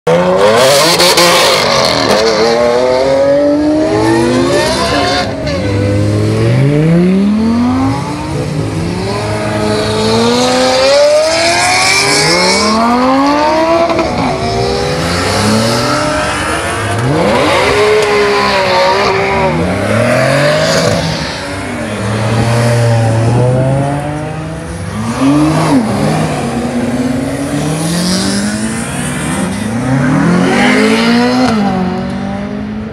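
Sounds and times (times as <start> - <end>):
car engines revving: 0.0 - 32.9.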